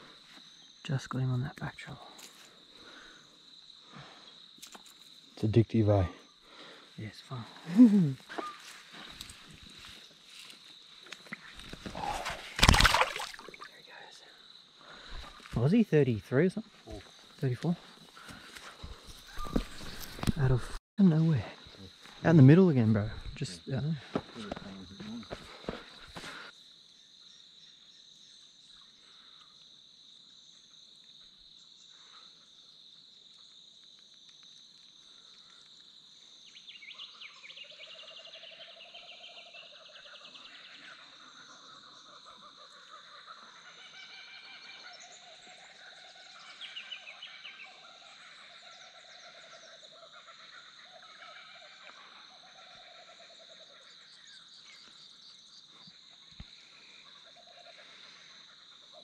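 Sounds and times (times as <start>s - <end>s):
cicadas droning: 0.0s - 59.0s
rapid pulsed animal calls: 11.3s - 15.5s, 35.0s - 59.0s.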